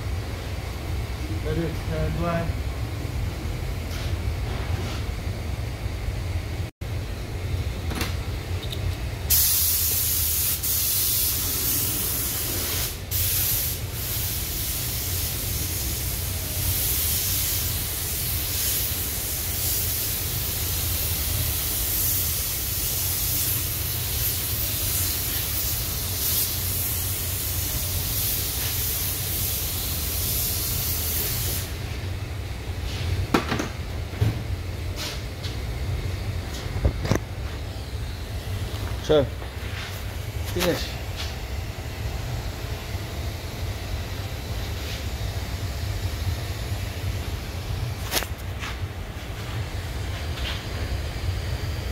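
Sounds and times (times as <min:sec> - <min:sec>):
steady low hum: 0:00.0 - 0:51.9
spray gun hissing: 0:09.3 - 0:31.8.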